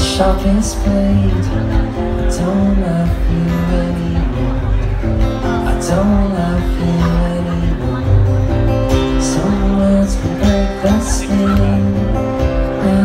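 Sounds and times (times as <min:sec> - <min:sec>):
acoustic guitar strumming: 0:00.0 - 0:13.0
man singing: 0:00.0 - 0:13.0.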